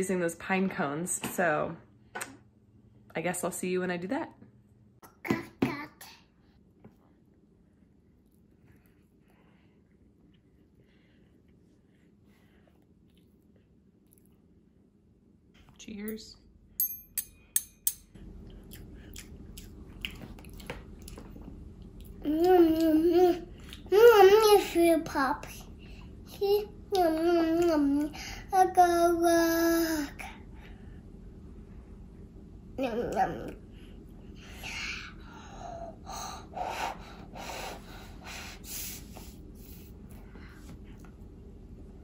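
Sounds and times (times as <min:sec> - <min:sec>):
breathy puffs of breath: 0:34.4 - 0:40.8.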